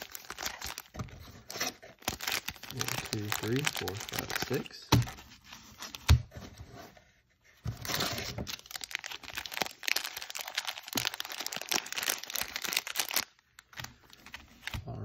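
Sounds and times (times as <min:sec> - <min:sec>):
foil wrappers crinkling: 0:00.0 - 0:04.8, 0:07.9 - 0:14.8.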